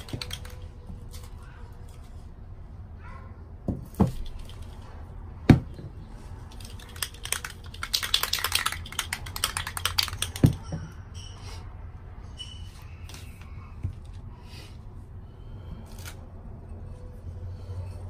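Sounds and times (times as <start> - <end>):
spray can ball rattling: 0.0 - 0.8, 6.5 - 10.8.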